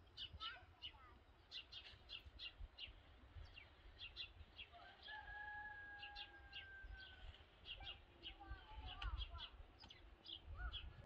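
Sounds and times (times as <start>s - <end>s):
small birds chirping: 0.0s - 5.4s, 6.0s - 11.0s
rooster crowing: 4.8s - 7.2s.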